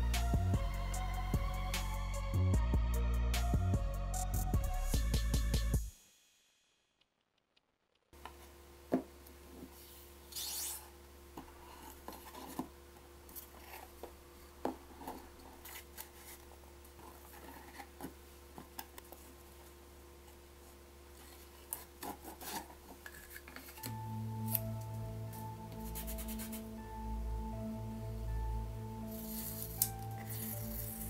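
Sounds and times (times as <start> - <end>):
faint steady hum: 8.2 - 31.0
rasping scrape: 21.2 - 23.5.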